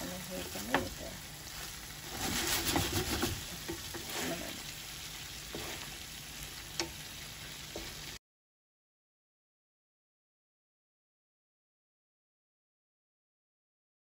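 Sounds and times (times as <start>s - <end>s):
wet stirring in frying pan: 0.0s - 8.2s.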